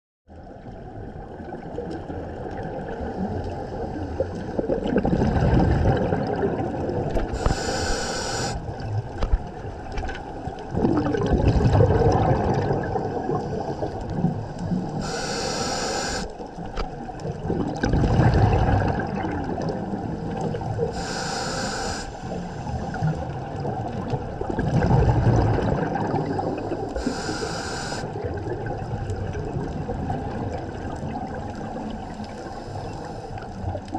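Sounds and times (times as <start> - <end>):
exhaled bubbles gushing underwater: 0.3 - 33.9
regulator hiss on inhale: 3.2 - 4.7, 7.3 - 8.8, 13.4 - 16.4, 20.5 - 23.0, 26.2 - 28.2, 32.2 - 33.6.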